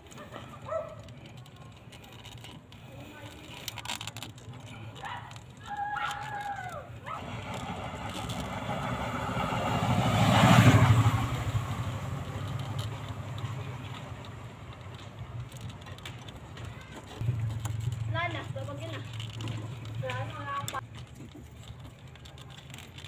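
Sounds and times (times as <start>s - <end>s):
motor vehicle passing by: 7.0s - 20.8s.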